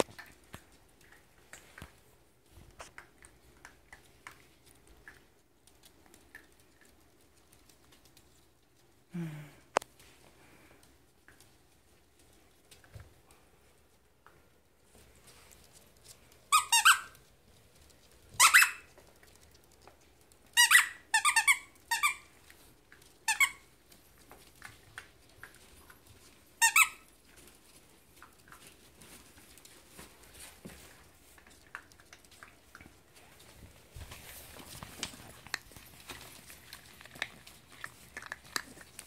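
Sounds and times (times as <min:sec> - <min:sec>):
paws pattering on floor: 0:00.0 - 0:09.1, 0:09.8 - 0:39.0
puppies squeaking: 0:16.5 - 0:17.2, 0:18.4 - 0:18.9, 0:20.6 - 0:22.3, 0:23.2 - 0:23.7, 0:26.6 - 0:27.1.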